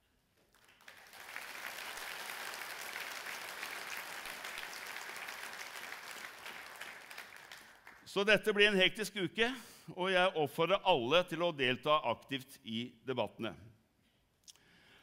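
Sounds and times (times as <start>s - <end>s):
audience applauding: 0.5s - 8.1s.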